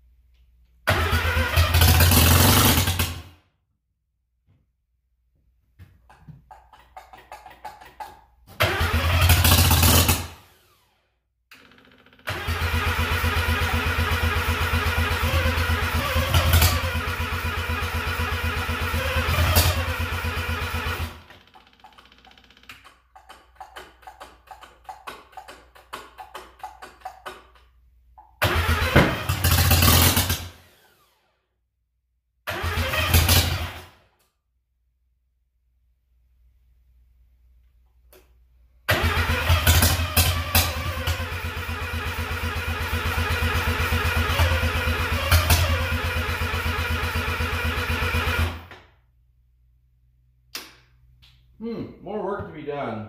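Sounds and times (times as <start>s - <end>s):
engine cranking on starter: 0.8s - 3.3s, 8.5s - 27.7s, 28.4s - 31.2s, 32.4s - 34.0s, 38.8s - 48.9s.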